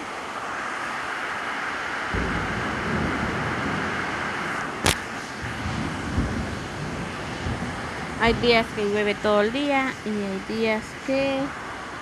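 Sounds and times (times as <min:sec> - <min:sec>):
rain on a metal roof: 0:00.0 - 0:12.0
low rumble: 0:02.1 - 0:12.0
sharp click: 0:04.8 - 0:05.2.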